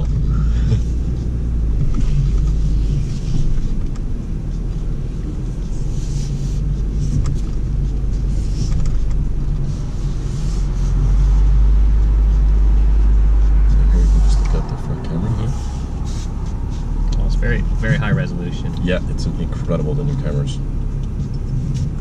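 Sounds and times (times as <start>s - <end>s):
car engine low rumble: 0.0s - 22.0s
faint crackles and rustles: 0.0s - 22.0s.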